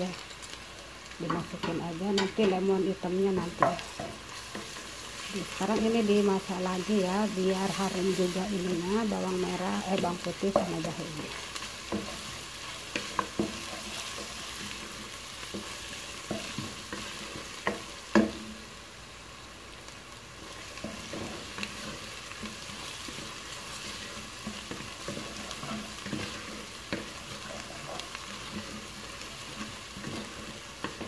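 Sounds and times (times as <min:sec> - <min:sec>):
aromatics sizzling in oil: 0:00.0 - 0:31.0
wooden spatula knocking pot: 0:03.3 - 0:04.2.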